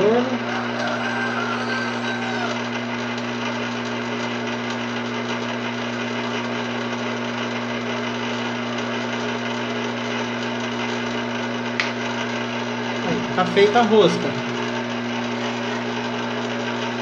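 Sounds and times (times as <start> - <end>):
lathe motor hum and whir: 0.0 - 17.0.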